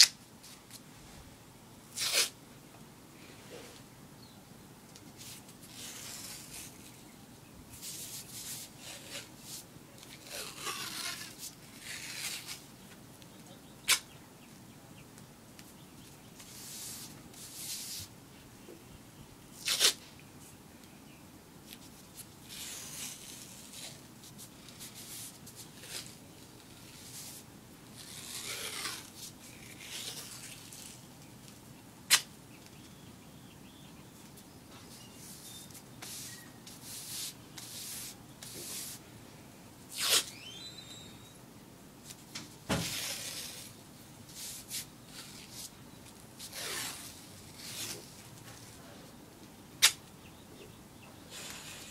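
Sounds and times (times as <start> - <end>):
tape ripping: 1.9 - 2.4, 7.8 - 12.6, 13.8 - 14.1, 19.6 - 20.1, 28.0 - 31.0, 32.1 - 32.3, 39.9 - 40.4, 42.1 - 45.7, 46.4 - 48.7, 49.8 - 50.0, 51.3 - 51.9.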